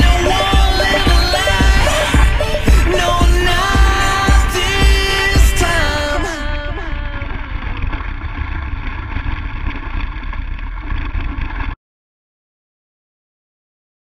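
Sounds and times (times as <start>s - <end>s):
music sliding down in pitch: 0.0s - 5.2s.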